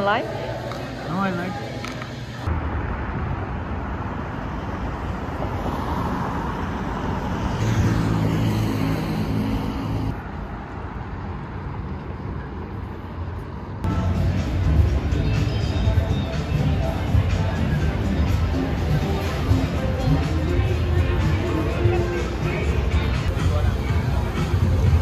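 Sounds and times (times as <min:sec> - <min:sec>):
cars passing: 0:02.4 - 0:25.0
deeper engine hum: 0:06.8 - 0:10.2.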